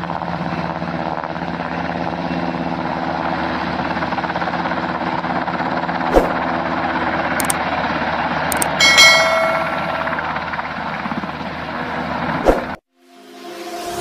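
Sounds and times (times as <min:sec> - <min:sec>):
helicopter rotor and engine drone: 0:00.0 - 0:12.8
sharp click: 0:07.4 - 0:07.6, 0:08.5 - 0:09.8.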